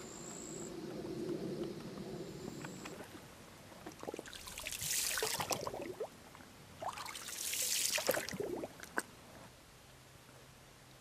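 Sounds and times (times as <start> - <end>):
water lapping against shore: 0.5 - 9.3
small splashes and bubbling: 2.4 - 9.1.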